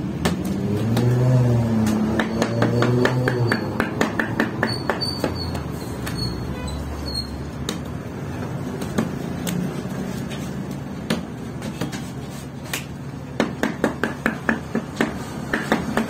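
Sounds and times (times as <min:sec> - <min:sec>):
hands slapping dough: 0:00.2 - 0:04.4, 0:10.7 - 0:16.0.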